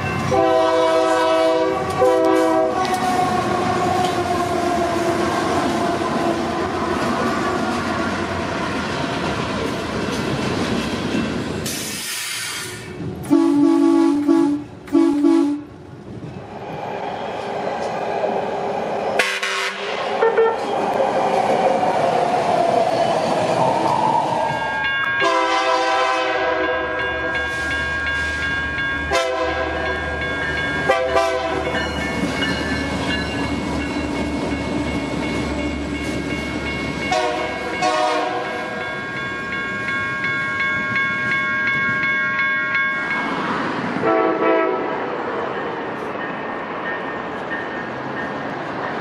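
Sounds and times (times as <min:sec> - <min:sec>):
diesel locomotives rumbling: 0:00.0 - 0:49.0
train approaching with rising whine: 0:00.0 - 0:49.0
train horn short blast: 0:00.3 - 0:03.0, 0:13.3 - 0:15.7, 0:19.2 - 0:20.6, 0:25.2 - 0:26.8, 0:29.1 - 0:29.8, 0:30.9 - 0:31.6, 0:37.1 - 0:38.5, 0:44.0 - 0:44.9
locomotive air horn blasts: 0:00.3 - 0:03.2, 0:13.3 - 0:15.7, 0:19.2 - 0:20.6, 0:25.2 - 0:26.9, 0:29.1 - 0:29.8, 0:30.9 - 0:31.6, 0:37.1 - 0:38.5, 0:44.0 - 0:44.9.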